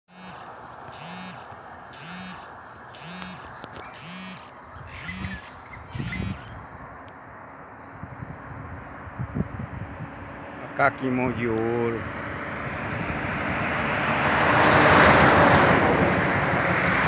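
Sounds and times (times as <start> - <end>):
animal calling raspily: 0.1 - 6.7.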